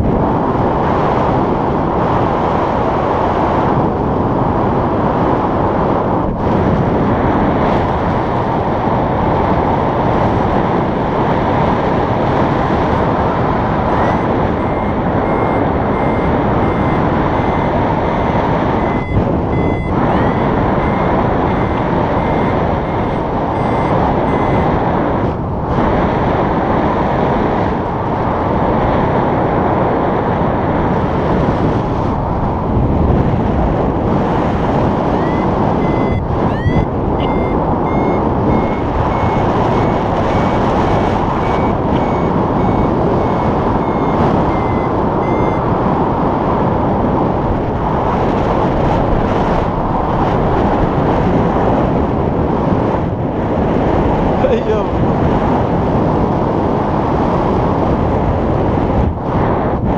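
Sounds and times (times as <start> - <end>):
wind rushing over microphone: 0.0 - 59.9
variometer beeping: 13.8 - 25.1, 34.8 - 46.0.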